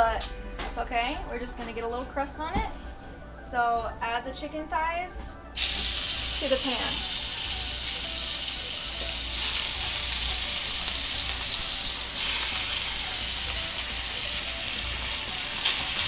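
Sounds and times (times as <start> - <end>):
chicken sizzling in hot oil: 5.6 - 16.0.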